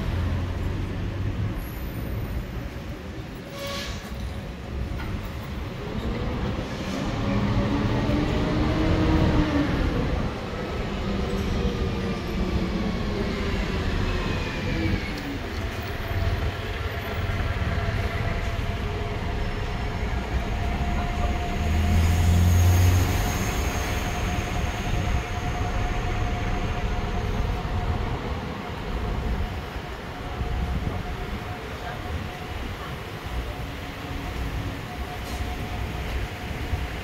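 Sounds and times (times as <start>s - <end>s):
city street traffic: 0.0s - 37.0s.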